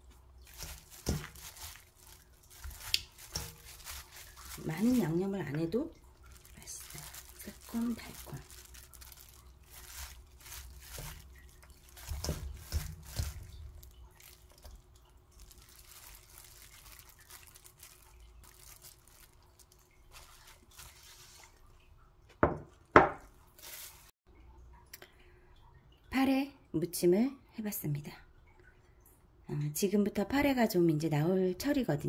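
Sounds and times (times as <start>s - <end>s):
wet salad squishing: 0.0s - 21.6s
plate set down on wooden table: 22.4s - 23.2s.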